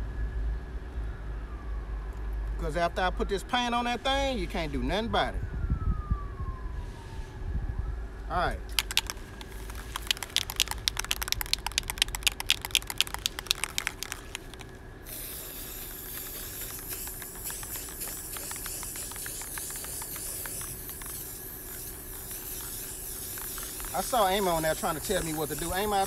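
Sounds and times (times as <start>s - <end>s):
spray can ball rattling: 8.7s - 26.0s
spray paint hissing: 8.7s - 26.0s.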